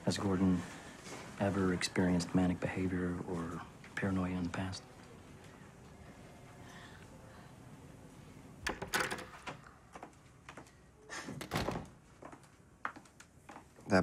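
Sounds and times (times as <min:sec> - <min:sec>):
door latch clicks: 0:08.6 - 0:09.7
door knocking: 0:08.7 - 0:09.5.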